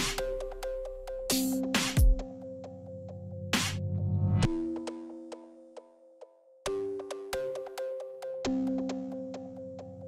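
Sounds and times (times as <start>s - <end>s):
electronic music: 0.0s - 10.0s.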